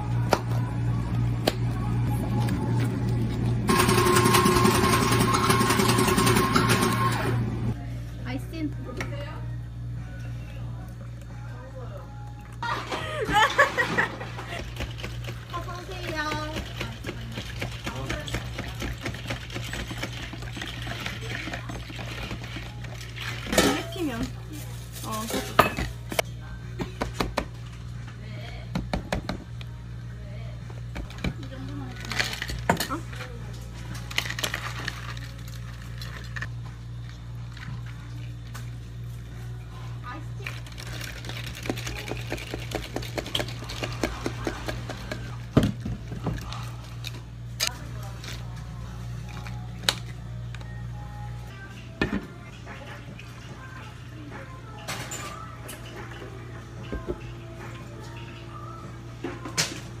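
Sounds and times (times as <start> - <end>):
spoon stirring ice in plastic cup: 14.6 - 24.4, 40.4 - 45.4.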